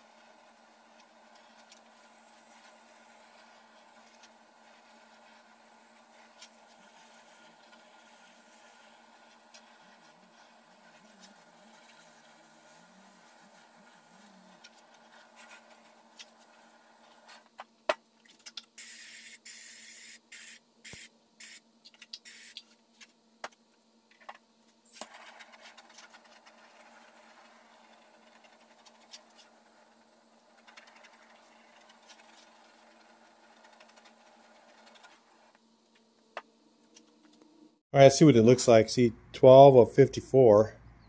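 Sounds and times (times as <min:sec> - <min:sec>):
compressed air hissing spurts: 0:18.8 - 0:21.6, 0:22.2 - 0:22.6.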